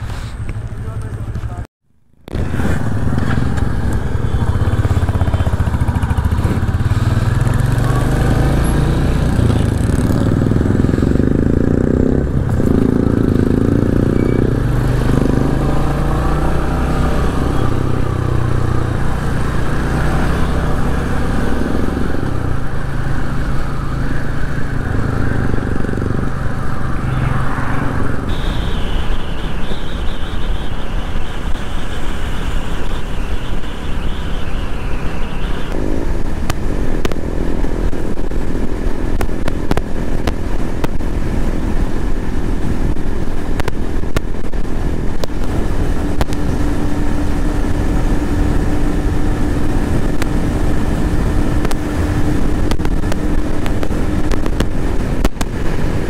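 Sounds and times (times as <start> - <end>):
motorcycle engine running: 0.0 - 1.6, 2.2 - 56.0
wind noise: 2.2 - 56.0.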